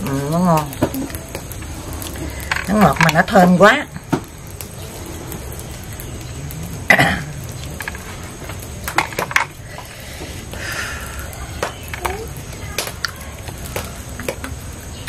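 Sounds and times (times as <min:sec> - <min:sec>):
steady background noise: 0:00.0 - 0:15.0
cough-like throat sound: 0:06.9 - 0:07.3.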